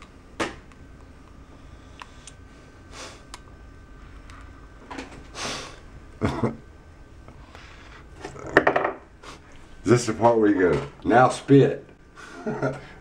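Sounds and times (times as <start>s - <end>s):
man breathing: 7.3s - 8.2s.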